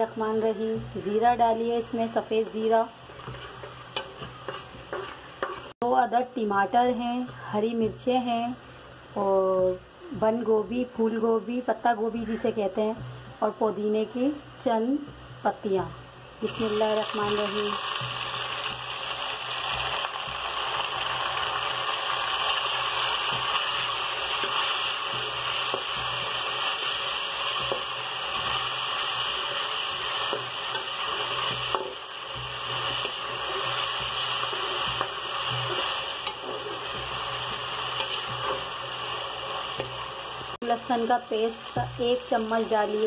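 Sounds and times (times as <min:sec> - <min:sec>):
vegetables sizzling in hot oil: 0:00.0 - 0:08.5, 0:14.3 - 0:43.0
spoon scraping and tapping pot: 0:02.4 - 0:05.7.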